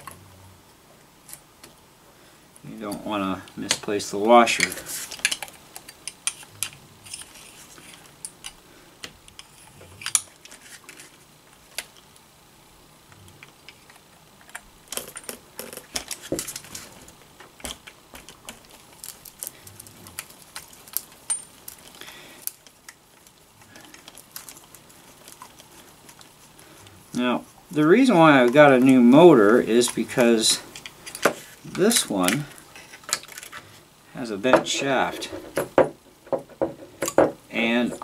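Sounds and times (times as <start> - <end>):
small metallic clicks and clinks: 19.0 - 23.0.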